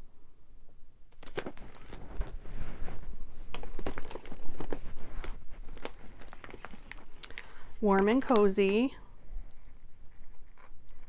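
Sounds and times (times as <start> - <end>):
plastic packaging crinkling: 1.1 - 8.9.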